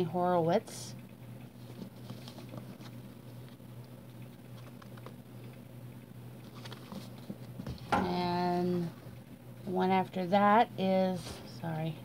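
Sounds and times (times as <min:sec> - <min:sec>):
steady low hum: 0:00.0 - 0:12.0
book pages rustling: 0:01.6 - 0:05.2, 0:06.4 - 0:07.9.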